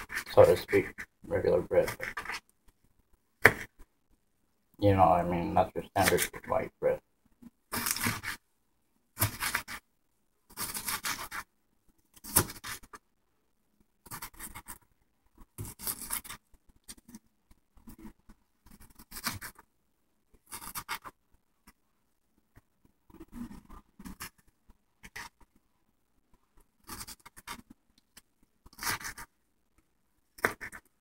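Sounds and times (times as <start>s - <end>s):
knife cutting on plastic board: 0.0s - 2.5s, 3.4s - 3.9s, 5.9s - 6.5s, 7.7s - 8.4s, 9.2s - 9.9s, 10.5s - 11.5s, 12.1s - 13.0s, 14.0s - 17.2s, 17.8s - 19.7s, 20.3s - 21.8s, 23.1s - 25.6s, 26.6s - 27.8s, 28.6s - 29.3s, 30.3s - 30.9s.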